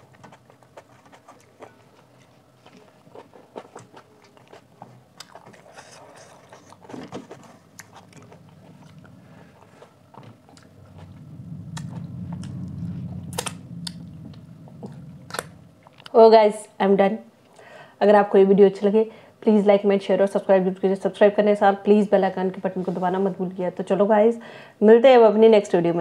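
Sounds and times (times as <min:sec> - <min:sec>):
wet chewing: 0:00.0 - 0:16.2.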